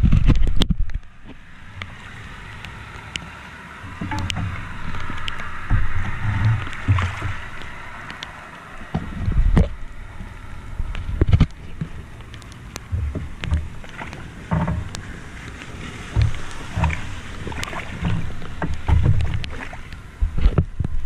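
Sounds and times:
clicks and low bumps: 0.0 - 21.0
floodwater sloshing and splashing: 0.0 - 21.0
loud low rumble: 3.7 - 11.6.

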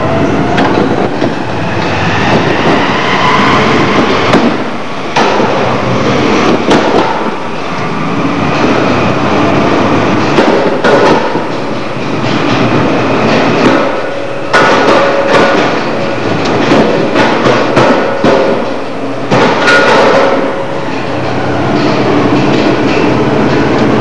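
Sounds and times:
metal clanks of impacts: 4.0 - 5.8, 10.1 - 24.0.

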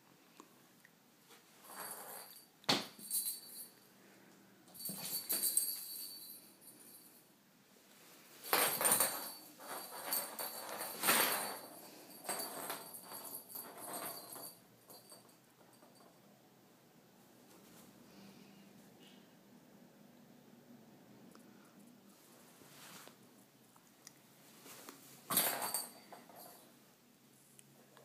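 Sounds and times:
light jingling: 4.7 - 7.3, 25.3 - 26.7.

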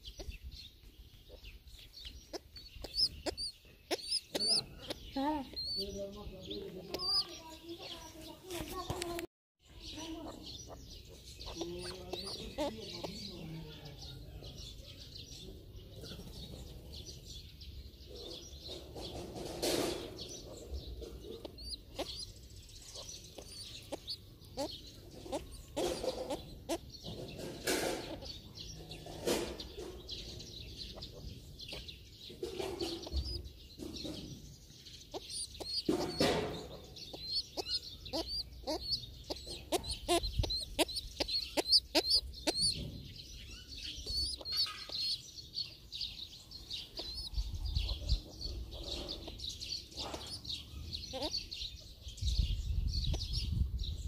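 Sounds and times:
high quick bird chirps: 0.0 - 6.0, 29.6 - 53.6.

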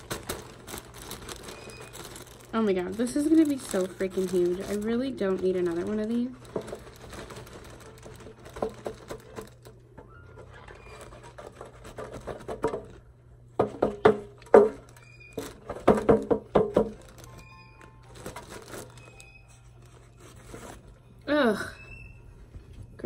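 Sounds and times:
plastic bag rustling: 0.0 - 21.3
cardboard knocking on plastic bin: 11.9 - 13.0, 13.6 - 14.8, 15.6 - 17.2.

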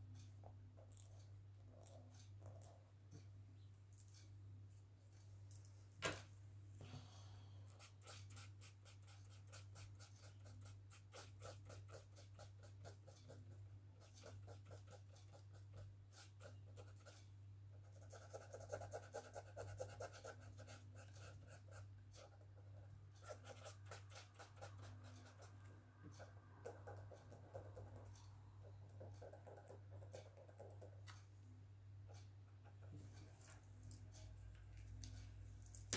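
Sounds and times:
marker scratching on paper: 7.7 - 17.2, 17.8 - 28.3, 29.0 - 31.0.

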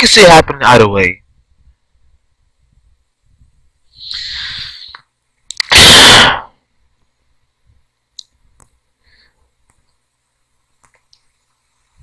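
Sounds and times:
short hiss: 3.9 - 6.6
distorted blast of noise: 5.6 - 6.6.

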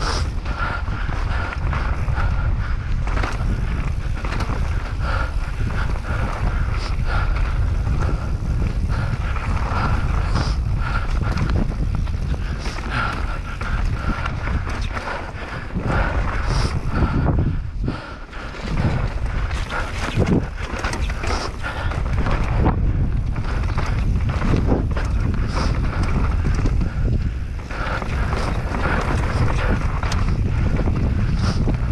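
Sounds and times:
wind buffeting microphone: 0.0 - 31.9
bike clattering over rocks: 18.5 - 31.9.

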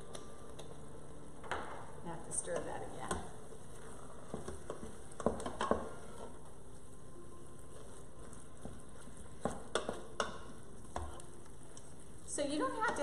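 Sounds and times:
meat sizzling in a pot: 0.0 - 13.0
utensil knocking against pot: 9.4 - 11.1.

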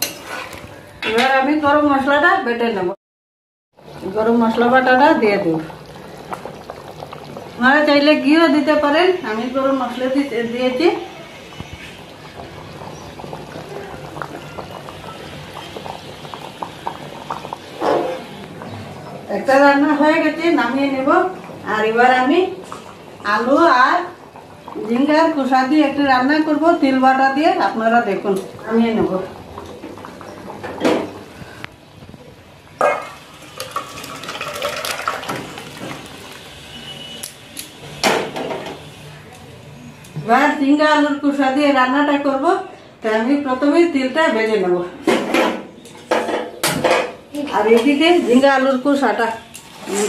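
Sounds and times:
thick gravy simmering: 3.8 - 37.1
liquid pouring: 5.0 - 7.6, 11.4 - 18.6, 33.0 - 36.6.

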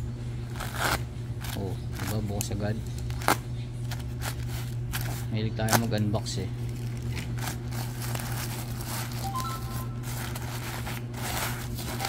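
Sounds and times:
steady low hum: 0.0 - 12.0
plastic and bubble wrap rustling: 3.0 - 5.9, 6.6 - 12.0.

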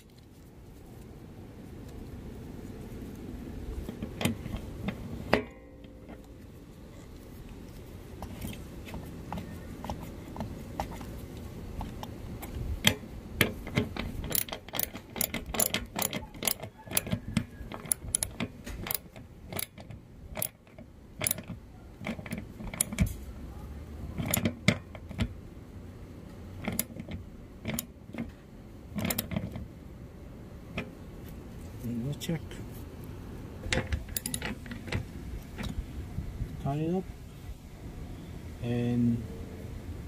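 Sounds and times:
ratchet clicking: 11.8 - 23.1, 33.8 - 35.0.

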